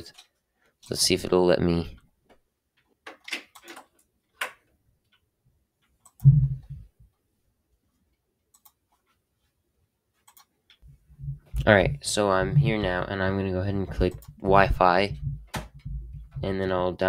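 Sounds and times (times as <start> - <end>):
computer mouse clicks: 5.8 - 6.7, 8.5 - 9.1, 10.2 - 10.8, 14.0 - 14.4
low thud: 6.2 - 6.8, 13.9 - 16.6.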